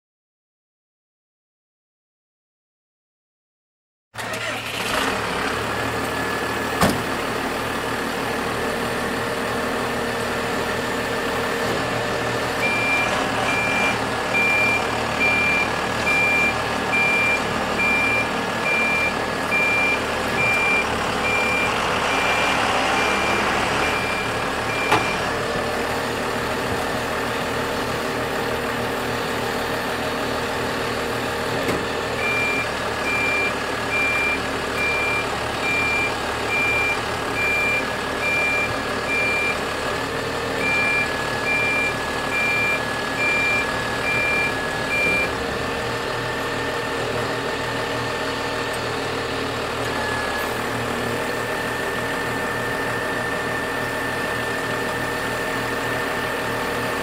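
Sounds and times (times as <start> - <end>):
diesel truck engine idling: 4.2 - 57.0
short high alarm beeps: 12.6 - 21.8, 32.2 - 39.6.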